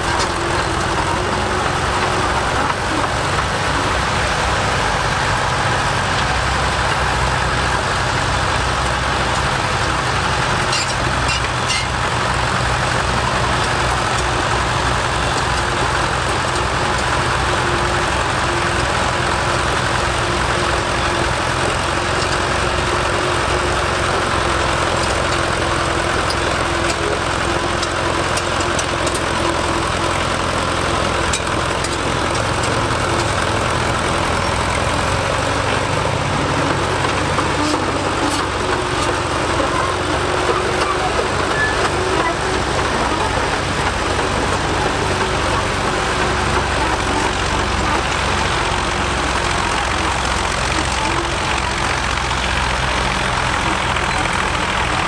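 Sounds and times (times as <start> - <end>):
blade pushing soil: 0.0 - 55.0
bulldozer engine running: 0.0 - 55.0.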